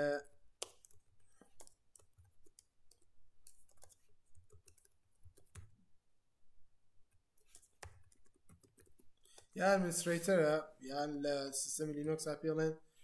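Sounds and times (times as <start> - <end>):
keyboard typing: 0.6 - 5.8, 7.4 - 9.6.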